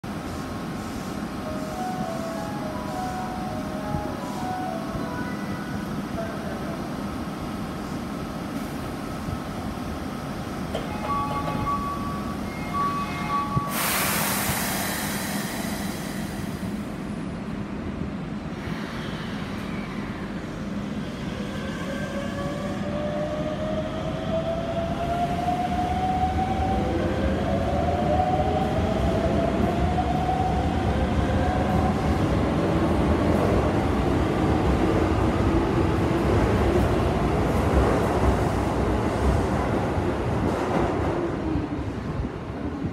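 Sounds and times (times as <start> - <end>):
two-tone door chime: 10.8 - 13.8
hiss of air from closing doors: 13.6 - 17.0.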